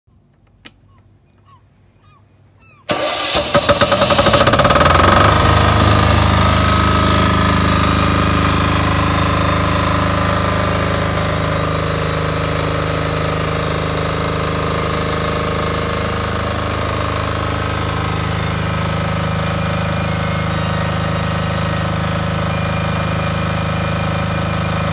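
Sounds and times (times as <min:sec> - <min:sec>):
diesel generator running: 0:02.9 - 0:24.9
electric starter cranking: 0:02.9 - 0:24.9.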